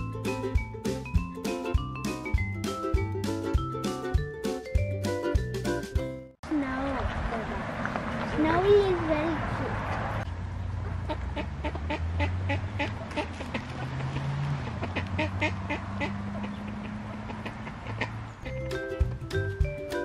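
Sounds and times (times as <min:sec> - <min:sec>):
ducks quacking: 0:10.9 - 0:18.7.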